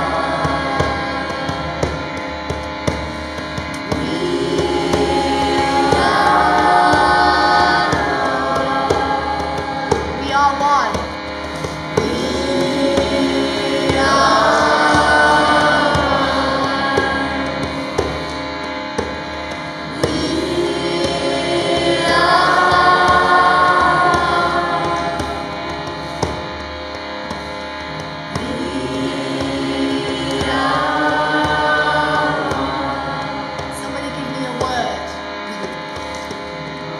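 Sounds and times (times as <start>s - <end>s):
group chanting: 0.0s - 2.2s, 3.0s - 10.9s, 11.5s - 26.5s, 28.3s - 33.8s
harmonium drone: 0.0s - 36.9s.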